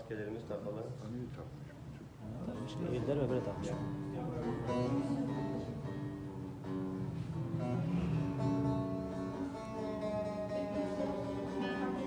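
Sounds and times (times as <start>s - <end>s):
acoustic guitar: 0.0s - 12.0s
long-necked lute plucking: 2.4s - 12.0s.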